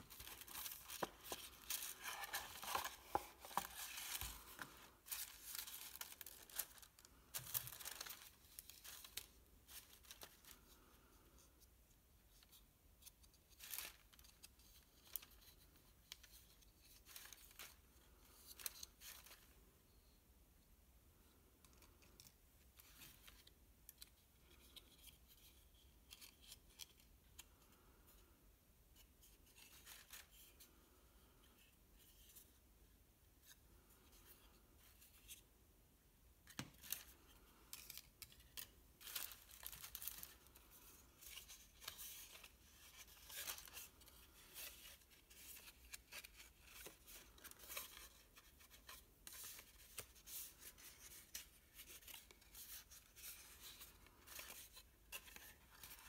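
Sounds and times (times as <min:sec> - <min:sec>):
paper rustling and crackling: 0:00.0 - 0:10.9, 0:36.5 - 0:56.0.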